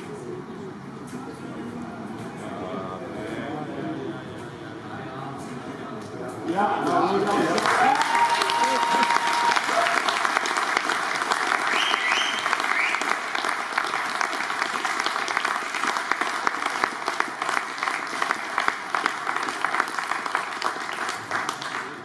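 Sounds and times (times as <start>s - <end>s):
audience applauding: 6.8s - 22.0s.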